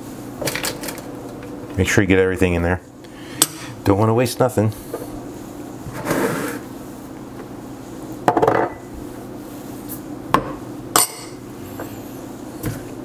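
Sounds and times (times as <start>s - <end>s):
spatula scraping a bowl: 5.9s - 6.7s.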